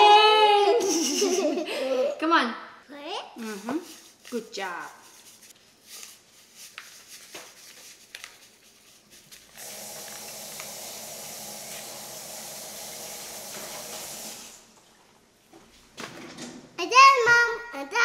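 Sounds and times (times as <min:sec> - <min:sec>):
paper packet rustling: 0:03.4 - 0:12.0
water running from tap: 0:09.6 - 0:14.7.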